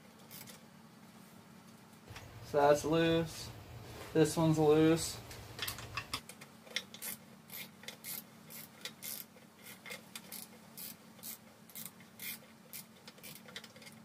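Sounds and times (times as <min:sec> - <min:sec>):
ratchet wrench clicking: 0:06.7 - 0:14.0.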